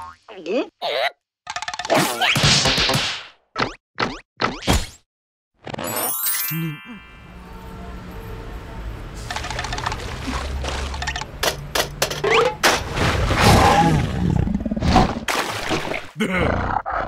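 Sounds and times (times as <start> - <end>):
cartoon knocks and whacks: 1.5 - 5.0.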